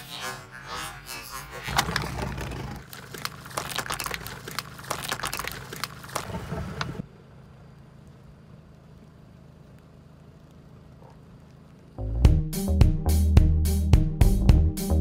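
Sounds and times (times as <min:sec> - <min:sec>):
plastic cups crushed under tyre: 0:01.7 - 0:06.4.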